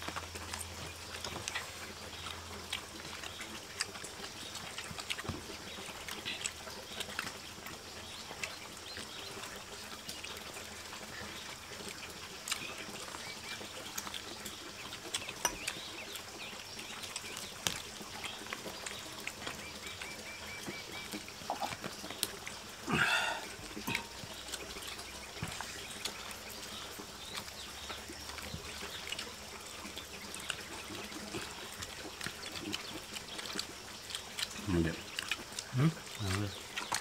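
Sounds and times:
faint outdoor background: 0.0s - 37.0s
bird chirping: 4.2s - 37.0s.

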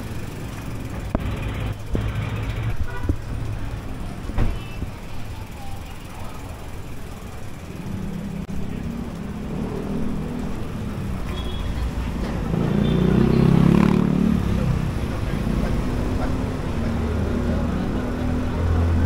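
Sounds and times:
vehicle engines running: 0.0s - 19.0s
vehicle passing close: 7.8s - 19.0s.

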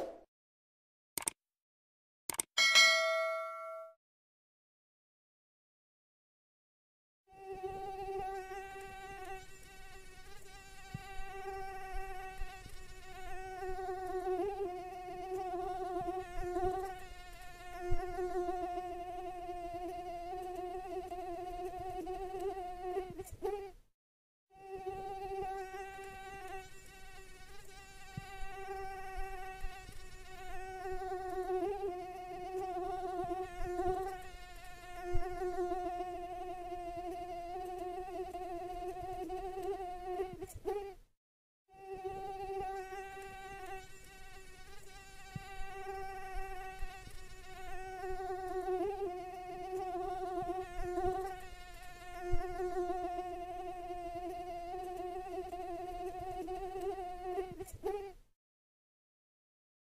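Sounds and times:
sharp clicks: 1.2s - 1.4s, 2.3s - 2.5s
mosquito whine: 7.3s - 23.7s, 24.5s - 41.0s, 41.7s - 58.2s.

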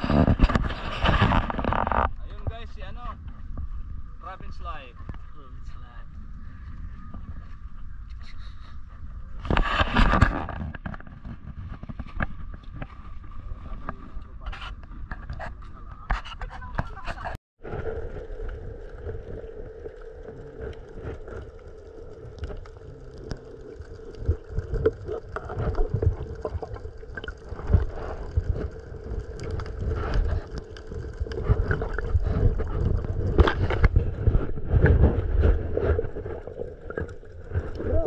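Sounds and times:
steady hum: 17.6s - 38.0s.

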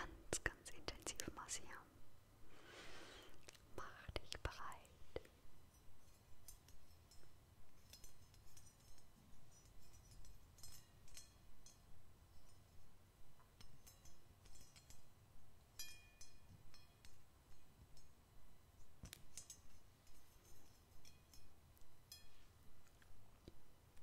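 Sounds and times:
metal prongs clicking and pinging: 5.7s - 12.7s.

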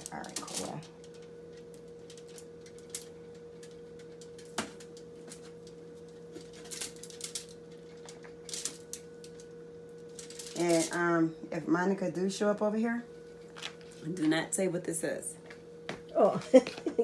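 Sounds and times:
foil crinkling and tapping: 0.0s - 11.0s
steady background hum: 0.0s - 17.0s.

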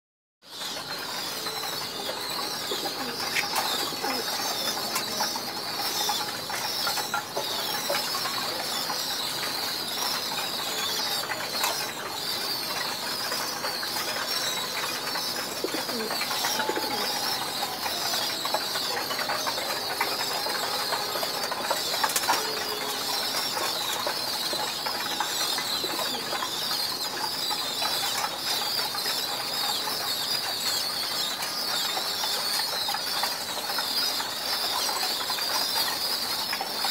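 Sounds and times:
birds twittering: 0.5s - 36.9s.

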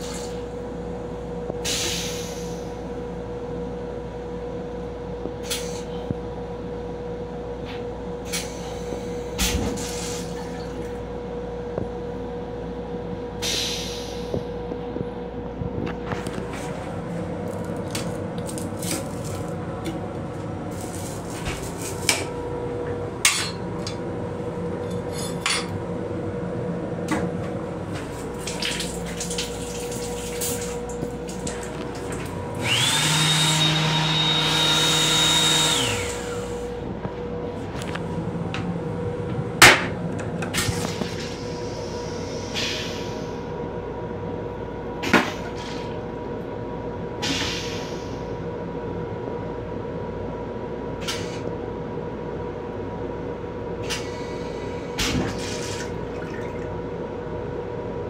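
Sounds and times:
train hum: 0.0s - 58.0s
faucet motor whine: 28.2s - 36.8s
faucet water spraying: 28.3s - 31.7s.

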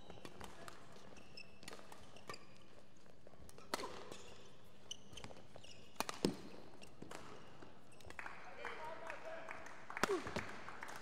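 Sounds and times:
shoes squeaking on court: 0.0s - 8.1s
racket striking shuttlecock: 6.0s - 7.2s.

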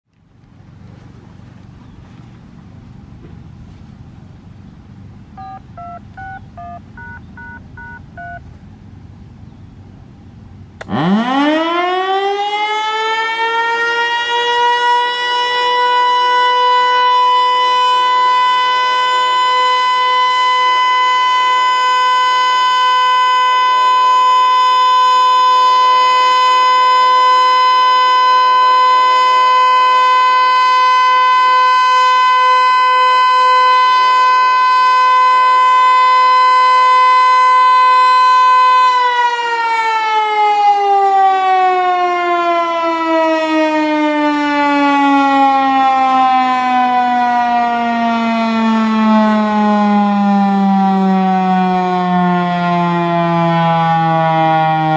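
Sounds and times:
touch-tone beeps: 5.4s - 8.4s
warning siren wailing: 5.4s - 8.4s, 10.8s - 54.9s.

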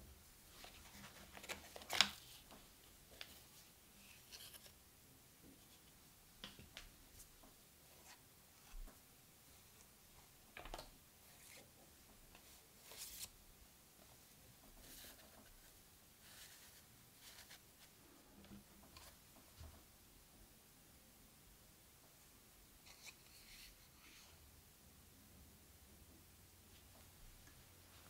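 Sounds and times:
paper and cardboard rustling: 0.5s - 4.7s, 12.4s - 13.3s.

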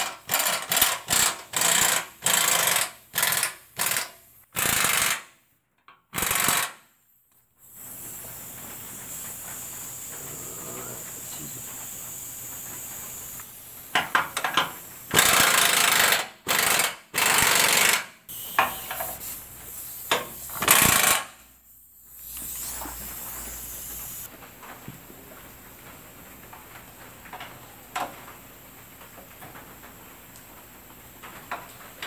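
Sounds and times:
impact wrench bursts: 0.0s - 5.3s, 6.1s - 6.8s, 13.9s - 21.4s.

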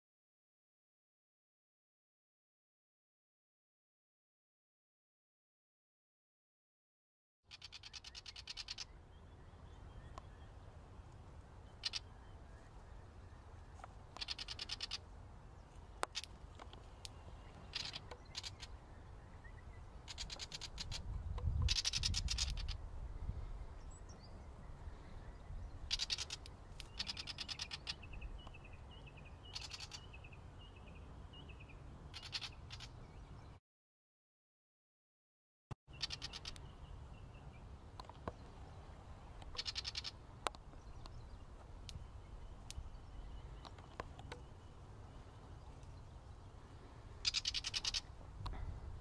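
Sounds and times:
small bird chattering: 7.5s - 9.0s, 11.7s - 12.2s, 14.2s - 15.1s, 16.0s - 16.4s, 17.0s - 18.8s, 20.0s - 22.8s, 25.8s - 28.2s, 29.4s - 30.3s, 32.1s - 33.0s, 35.9s - 36.7s, 39.5s - 40.2s, 47.2s - 48.2s
soft bird chirps: 7.5s - 33.6s, 35.9s - 49.0s
low wind rumble: 8.8s - 33.6s, 36.0s - 49.0s.

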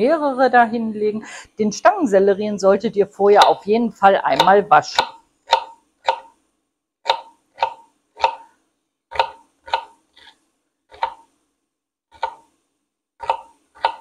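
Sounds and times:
knife chopping on wooden board: 4.3s - 6.4s, 7.0s - 8.5s, 9.1s - 11.3s, 12.1s - 12.5s, 13.2s - 14.0s.

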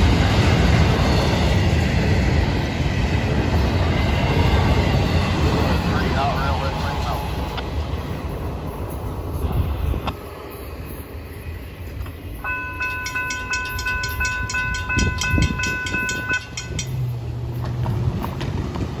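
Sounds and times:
railroad crossing bell ringing: 10.3s - 17.7s.

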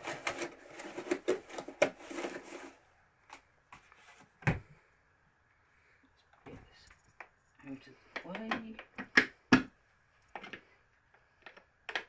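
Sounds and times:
packaging rustling: 0.0s - 2.9s
small clicks and knocks: 10.2s - 12.0s.

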